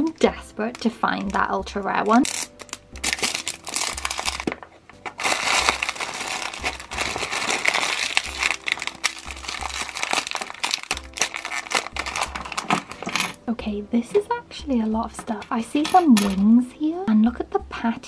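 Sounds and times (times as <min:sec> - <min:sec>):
packaging crinkling: 0:02.2 - 0:13.4.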